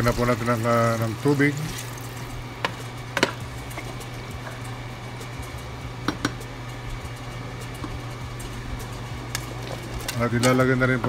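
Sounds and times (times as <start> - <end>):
steady low hum: 0.0 - 11.0
wooden spatula stirring in pot: 0.1 - 5.3.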